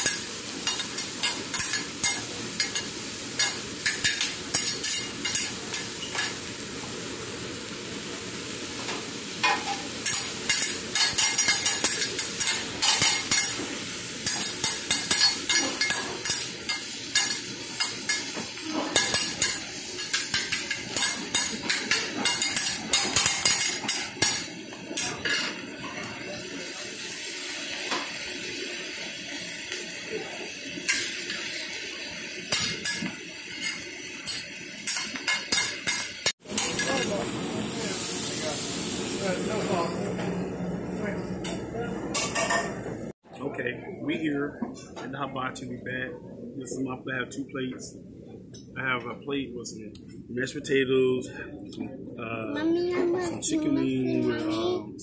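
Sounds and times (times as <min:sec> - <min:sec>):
food sizzling on a griddle: 0:00.0 - 0:41.2
metal spatulas clacking and scraping: 0:09.4 - 0:13.6, 0:14.2 - 0:26.0.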